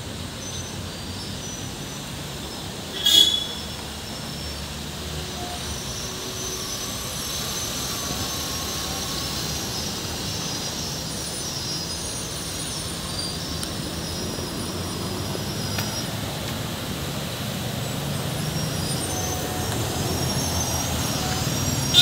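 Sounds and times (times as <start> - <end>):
heavy lorry engine: 0.0 - 22.0
cars passing: 1.2 - 22.0
motorbikes passing: 13.8 - 22.0.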